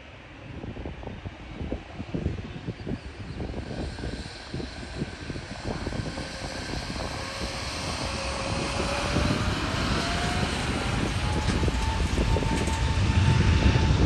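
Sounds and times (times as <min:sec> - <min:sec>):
jet engines spooling up: 0:02.9 - 0:14.0.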